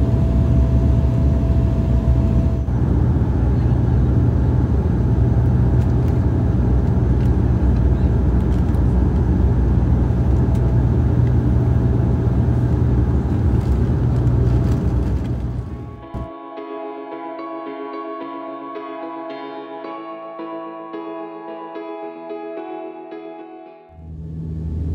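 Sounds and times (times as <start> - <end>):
turboprop engines droning in cabin: 0.0 - 16.3, 24.0 - 24.9.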